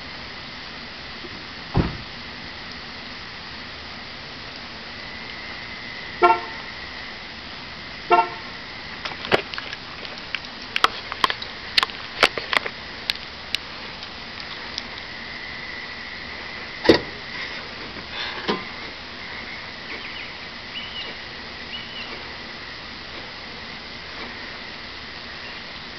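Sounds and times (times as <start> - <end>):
loud thump: 1.7 - 2.1, 16.8 - 17.2
car horn toots: 6.2 - 6.7, 8.1 - 8.5.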